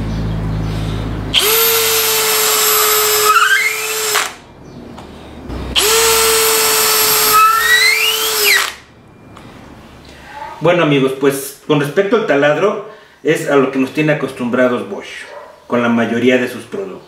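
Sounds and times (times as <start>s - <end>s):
cordless drill boring into wood: 1.3s - 4.4s, 5.8s - 8.8s.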